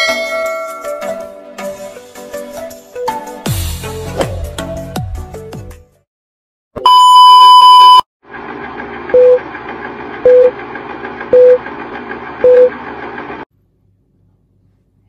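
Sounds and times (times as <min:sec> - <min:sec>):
long high beep: 0:06.8 - 0:08.0
short beep and click: 0:06.8 - 0:08.0.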